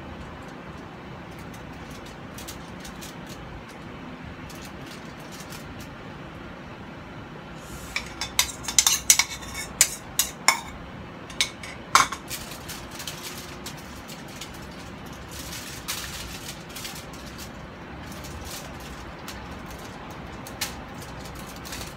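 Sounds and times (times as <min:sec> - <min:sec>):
spoon scraping ceramic bowl: 0:07.7 - 0:12.3
bowl put down with clack: 0:11.3 - 0:12.2.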